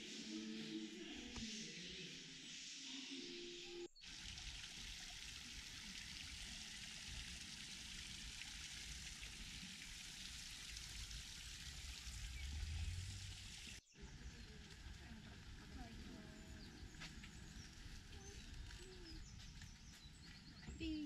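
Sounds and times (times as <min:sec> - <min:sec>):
low rumble: 0:11.4 - 0:19.3.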